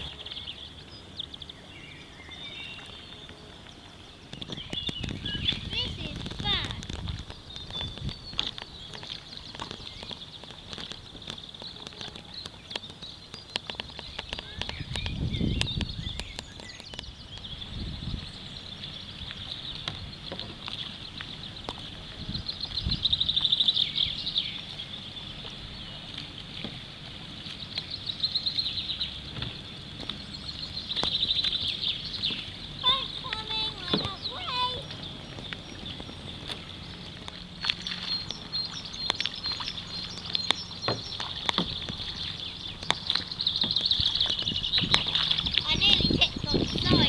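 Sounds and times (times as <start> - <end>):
light paddle splashes: 0.0 - 47.0
small birds singing: 0.0 - 47.0.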